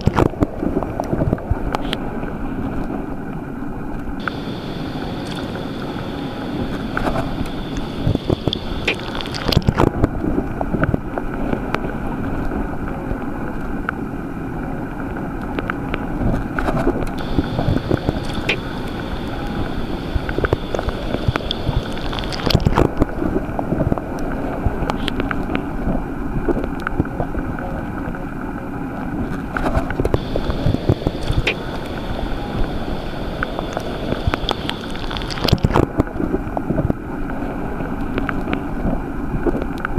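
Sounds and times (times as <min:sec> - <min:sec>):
underwater rumble and hiss: 0:00.0 - 0:39.9
crackling clicks: 0:03.9 - 0:11.8, 0:15.0 - 0:25.6, 0:29.3 - 0:37.4, 0:38.0 - 0:39.9.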